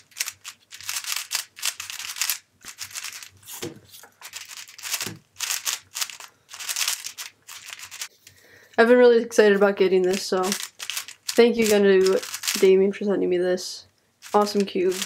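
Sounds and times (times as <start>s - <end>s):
puzzle cube plastic clicks: 0.0s - 3.3s, 4.2s - 8.1s, 10.0s - 12.7s, 14.2s - 15.0s.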